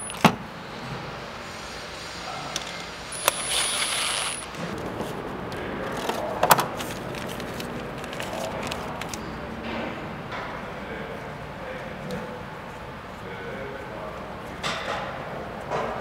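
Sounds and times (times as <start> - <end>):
cordless drill whining: 3.1 - 4.6
plastic bag handling: 3.2 - 9.2.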